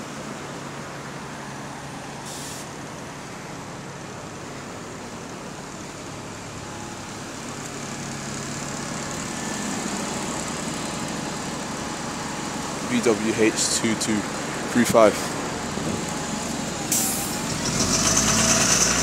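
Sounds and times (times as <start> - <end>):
bus engine idling: 0.0 - 19.0
compressed air hiss: 16.9 - 17.4.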